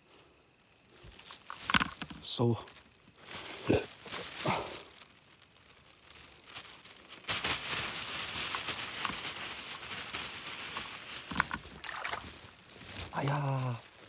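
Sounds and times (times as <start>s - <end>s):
hands rustling through grass: 2.7s - 14.0s
splashing in shallow water: 10.8s - 13.1s.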